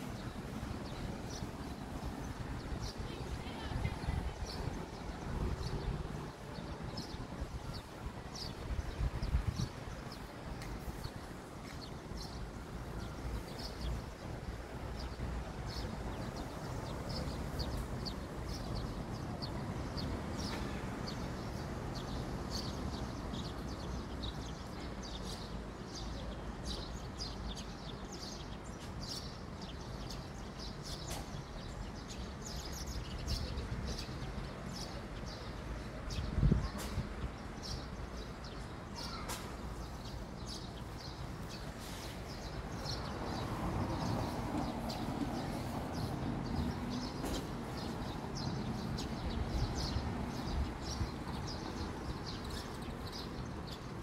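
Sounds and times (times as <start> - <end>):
small birds chirping: 0.0 - 54.0.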